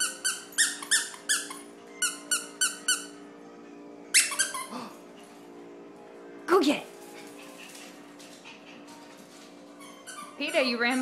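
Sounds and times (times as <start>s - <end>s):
squeaky dog toy squeezed: 0.0s - 3.2s, 4.1s - 4.7s, 9.8s - 11.0s.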